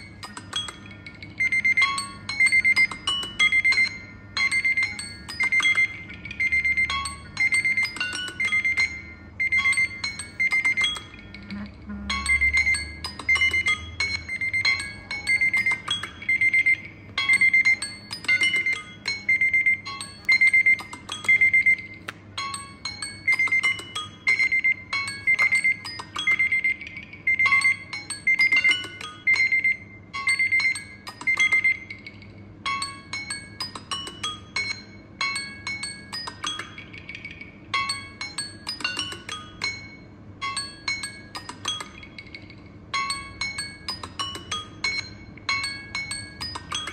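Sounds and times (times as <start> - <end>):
phone alarm beeping: 0.0 - 32.0
chime-like melodic tones: 0.0 - 46.9.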